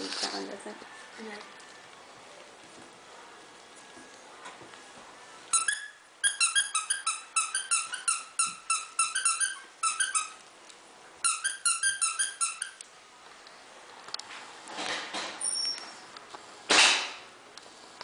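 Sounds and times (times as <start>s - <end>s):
squeaky toy squeaking: 5.5s - 10.4s, 11.2s - 12.8s.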